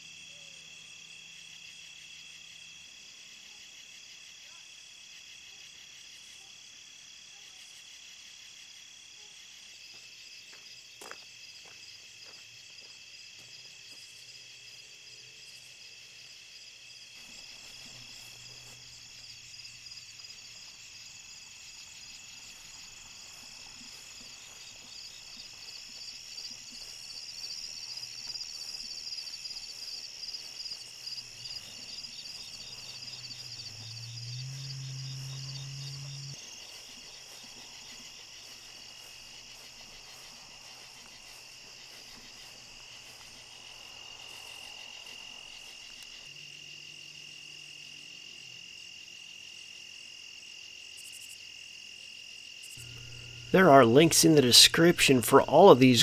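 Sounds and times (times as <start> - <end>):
crickets chirping: 0.0 - 56.0
fast pulsed insect trill: 15.1 - 55.8.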